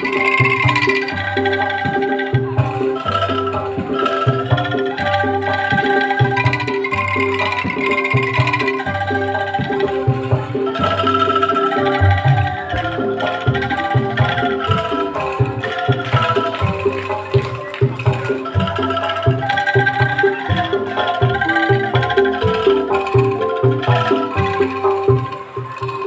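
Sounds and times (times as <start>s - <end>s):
angklung ensemble melody: 0.0s - 26.0s
low percussion beat: 0.0s - 26.0s.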